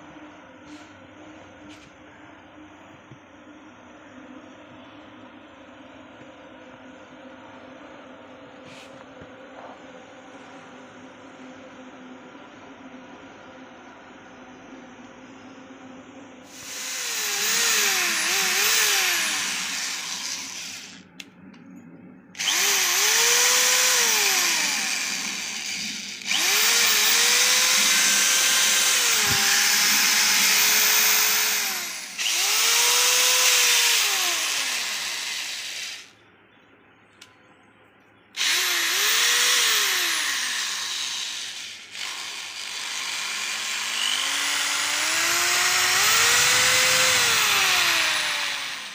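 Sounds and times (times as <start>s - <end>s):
electric screwdriver motor whine: 16.5s - 21.0s, 22.4s - 36.1s, 38.4s - 48.9s.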